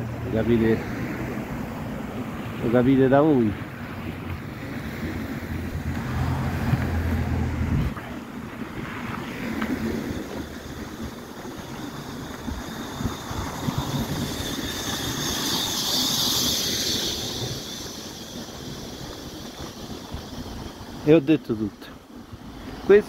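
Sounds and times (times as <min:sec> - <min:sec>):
cars passing on road: 0:00.0 - 0:23.0
high hiss: 0:09.4 - 0:23.0.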